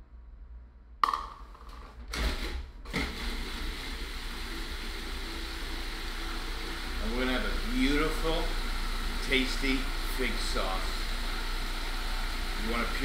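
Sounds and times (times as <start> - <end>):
food processor motor running: 2.9 - 13.0.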